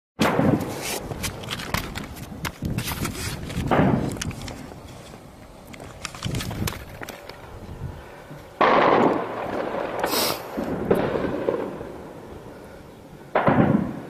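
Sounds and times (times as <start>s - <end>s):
distant shelling blasts: 0.2s - 0.8s, 3.6s - 4.2s, 8.6s - 14.0s.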